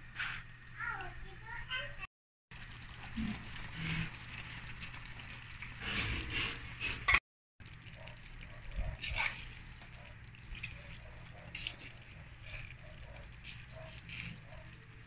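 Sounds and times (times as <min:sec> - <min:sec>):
pasta sauce bubbling in a pan: 0:02.5 - 0:06.8, 0:07.6 - 0:15.0
spoon stirring: 0:08.2 - 0:15.0.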